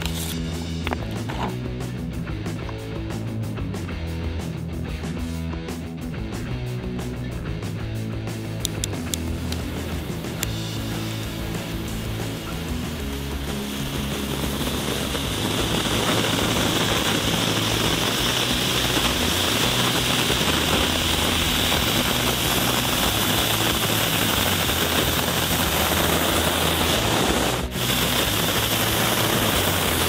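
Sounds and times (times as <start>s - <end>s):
firework fountains hissing: 0.0s - 1.6s, 7.8s - 30.0s.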